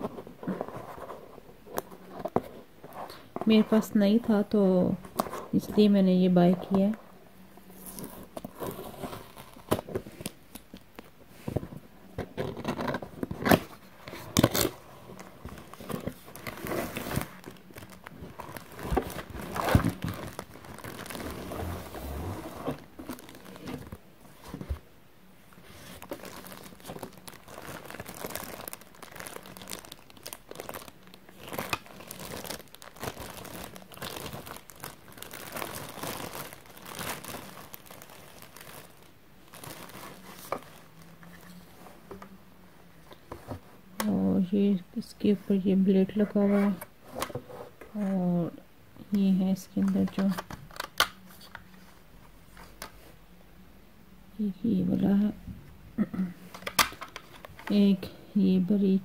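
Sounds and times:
plastic bag crinkling: 0:13.6 - 0:24.0, 0:25.6 - 0:41.6.

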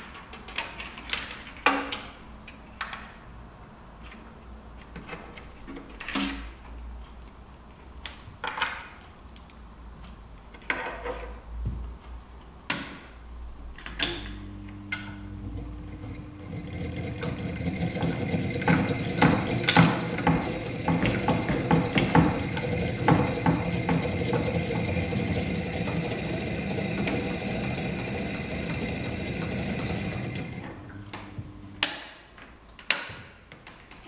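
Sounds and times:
continuous sound with held tones: 0:13.4 - 0:32.8.

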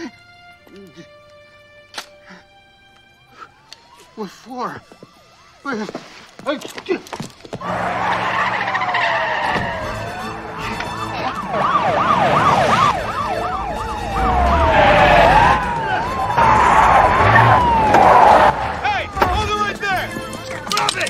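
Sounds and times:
police sirens wailing: 0:02.4 - 0:05.9, 0:07.6 - 0:21.0
car engines running: 0:07.6 - 0:19.4.

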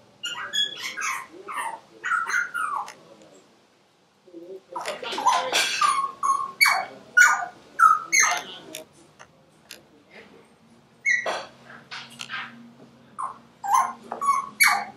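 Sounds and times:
dog yelping and whining: 0:13.2 - 0:14.9.

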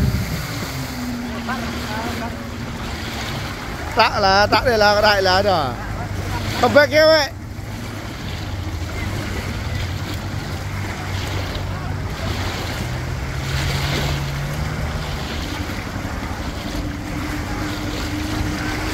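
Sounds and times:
wind buffeting microphone: 0:00.0 - 0:06.7
outboard motor running: 0:00.0 - 0:18.9
small waves lapping: 0:00.0 - 0:18.9.

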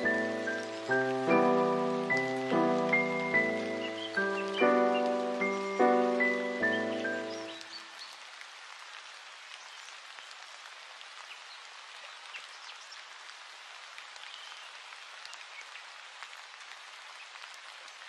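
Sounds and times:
rain ticks and drips: 0:00.0 - 0:18.0
steady rain hiss: 0:00.0 - 0:18.0.

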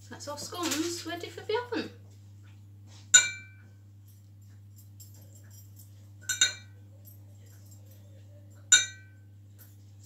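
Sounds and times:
brush clinking against glass: 0:03.2 - 0:09.9.

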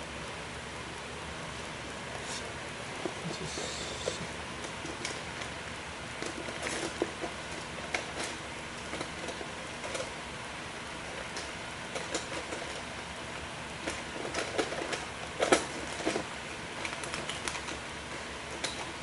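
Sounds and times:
steady hiss: 0:00.0 - 0:06.1.

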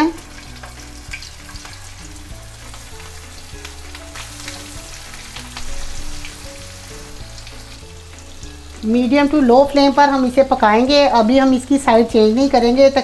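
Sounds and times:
fish sizzling in hot oil: 0:00.0 - 0:13.0
oil crackling and spitting: 0:00.2 - 0:08.9.

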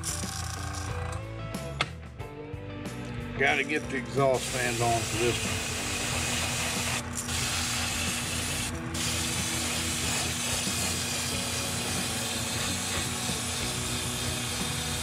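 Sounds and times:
exhaust fan hum: 0:03.4 - 0:15.0.

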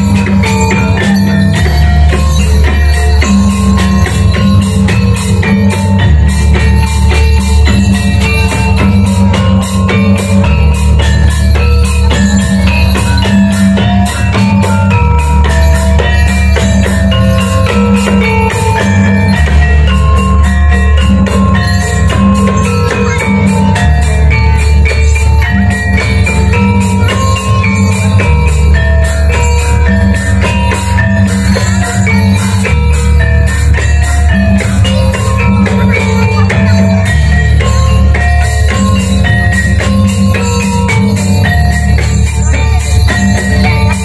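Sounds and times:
gamelan dance music: 0:00.0 - 0:44.0.

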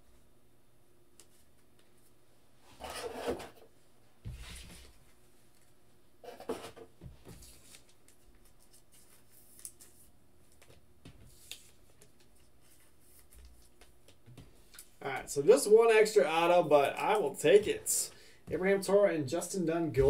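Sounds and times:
cards rustling: 0:07.4 - 0:13.9.

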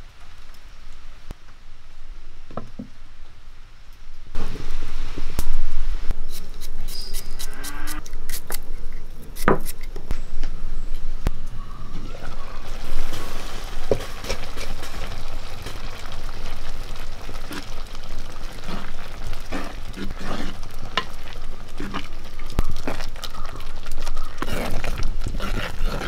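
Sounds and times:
curry bubbling hiss: 0:04.3 - 0:08.5, 0:11.9 - 0:26.0.

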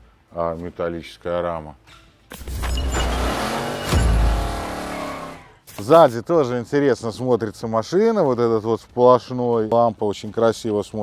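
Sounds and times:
car engine and tyre noise: 0:02.4 - 0:05.5.

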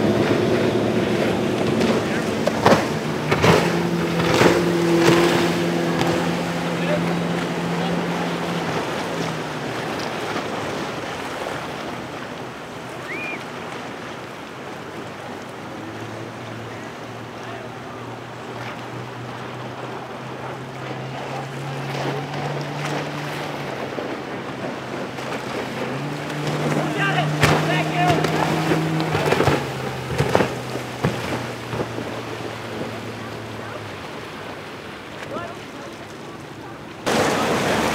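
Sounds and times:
outboard motors running: 0:00.0 - 0:37.9
spray and wake water hiss: 0:37.0 - 0:37.9.

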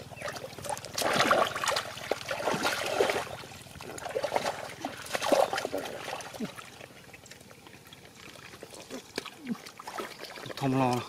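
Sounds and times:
hands splashing in muddy water: 0:00.2 - 0:06.8.

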